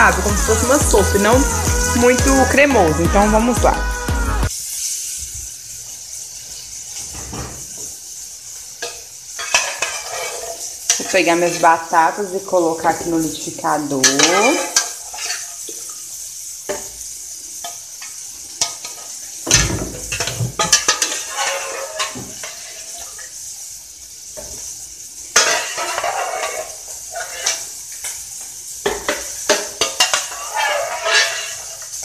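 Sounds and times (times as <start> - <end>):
bacon and sausage sizzling: 0.0 - 32.0
metal spoon scraping a metal pot: 9.4 - 11.7, 20.1 - 23.0, 25.4 - 27.8, 29.5 - 32.0.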